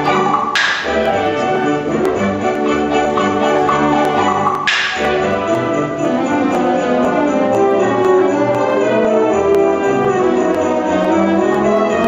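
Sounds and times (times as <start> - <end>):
wind band playing held chords: 0.0 - 12.0.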